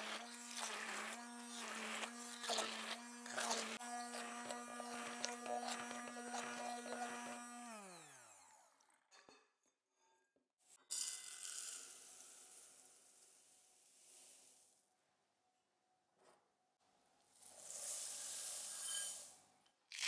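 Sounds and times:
immersion blender running: 0.0s - 9.0s.

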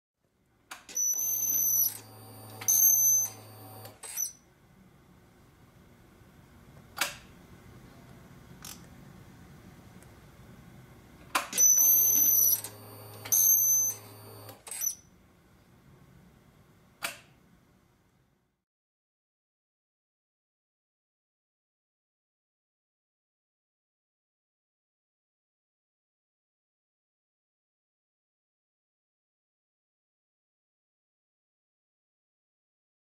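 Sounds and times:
high-pitched servo whirring: 0.9s - 4.4s, 11.6s - 15.0s.

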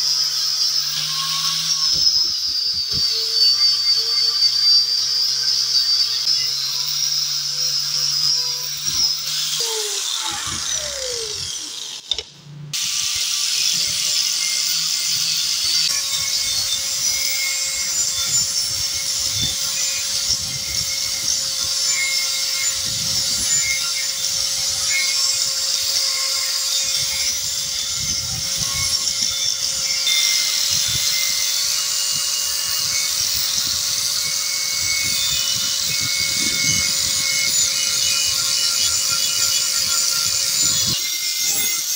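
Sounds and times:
angle grinder grinding steel: 0.0s - 41.9s.

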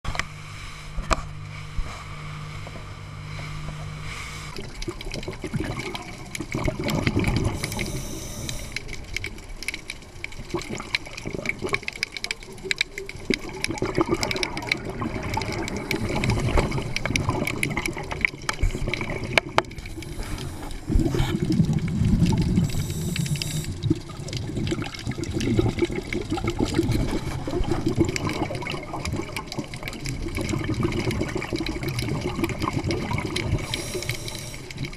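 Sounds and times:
boat engine humming: 0.1s - 4.9s
scuba regulator breathing: 0.5s - 4.8s, 7.4s - 9.0s, 19.8s - 21.5s, 22.6s - 23.8s, 33.5s - 34.9s
bubbles rushing and gurgling: 2.6s - 34.9s.

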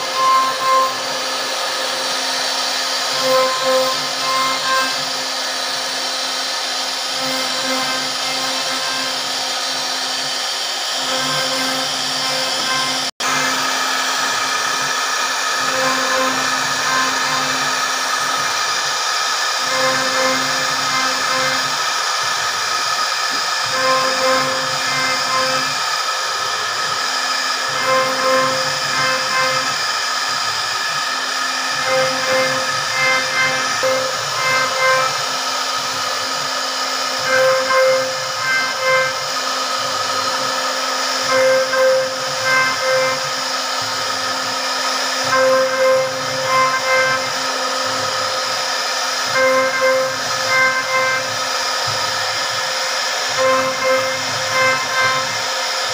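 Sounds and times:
cnc router spindle whining: 0.0s - 55.9s
router bit cutting wood hum: 0.0s - 55.9s.

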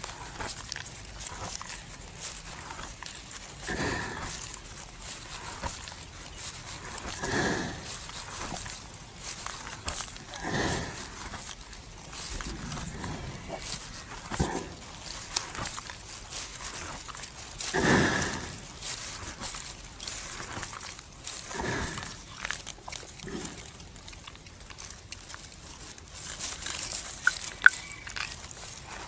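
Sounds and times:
buffalo chewing: 0.0s - 29.0s.

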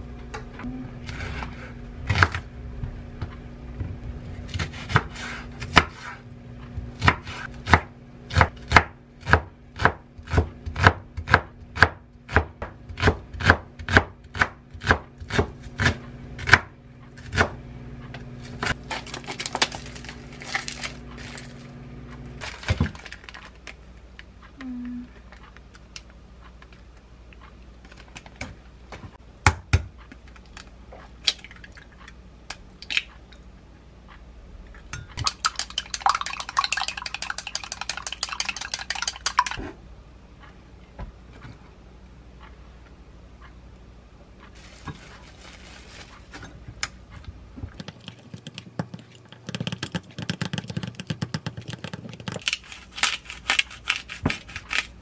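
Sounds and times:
knife chopping on wooden board: 4.5s - 6.2s, 6.9s - 17.6s.

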